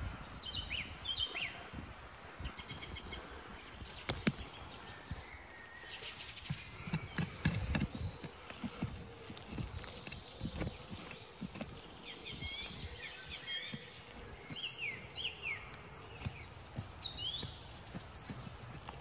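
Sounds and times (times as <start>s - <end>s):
songbird chirping: 0.0s - 19.0s.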